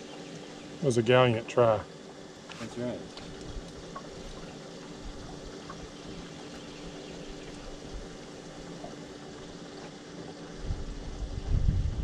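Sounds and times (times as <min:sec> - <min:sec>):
low steady hum: 0:00.0 - 0:12.0
water bubbling or trickling: 0:03.0 - 0:12.0.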